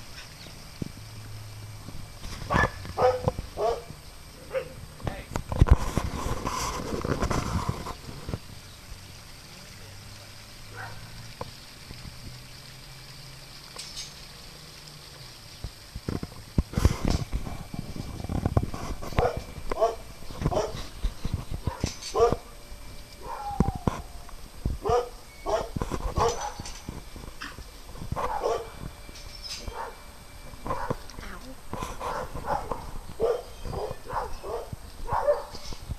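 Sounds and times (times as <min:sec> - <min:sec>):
fountain water hiss: 0:00.0 - 0:35.9
low steady hum: 0:00.0 - 0:35.9
dog barking: 0:02.5 - 0:03.9, 0:04.5 - 0:04.8, 0:10.7 - 0:11.0, 0:19.2 - 0:20.8, 0:21.6 - 0:22.4, 0:23.2 - 0:23.6, 0:24.8 - 0:26.6, 0:28.2 - 0:28.7, 0:30.7 - 0:31.0, 0:32.0 - 0:35.6.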